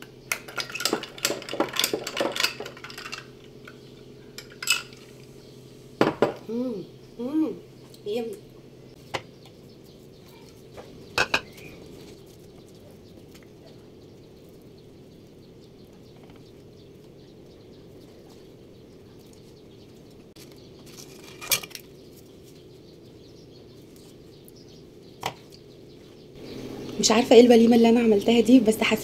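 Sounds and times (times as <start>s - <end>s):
steady low hum: 0.0s - 29.0s
plate knocking on stone counter: 6.0s - 6.4s.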